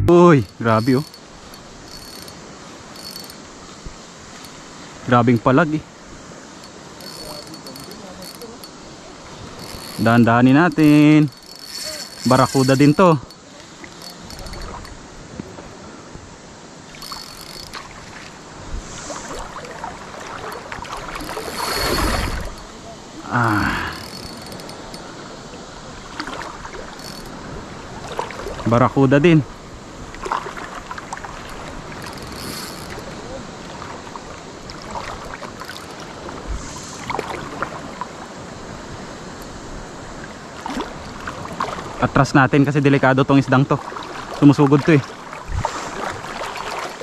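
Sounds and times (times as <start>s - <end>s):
faint clicks and ticks: 0.4s - 2.4s, 3.0s - 3.5s, 6.6s - 8.8s, 9.5s - 15.0s, 17.0s - 17.9s, 20.5s - 22.7s, 23.8s - 25.1s, 27.0s - 27.4s, 31.5s - 33.1s, 35.4s - 36.0s
water sloshing and lapping: 16.8s - 22.9s, 23.9s - 28.7s, 30.0s - 38.4s, 40.2s - 42.1s, 43.5s - 47.0s
wind noise on microphone: 20.8s - 22.7s, 45.4s - 46.6s.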